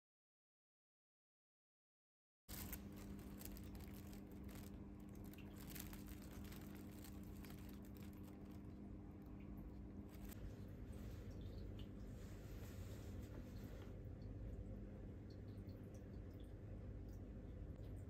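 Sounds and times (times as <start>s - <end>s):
plastic bag crinkling: 2.5s - 9.2s, 9.9s - 10.4s
steady low hum: 2.5s - 18.0s.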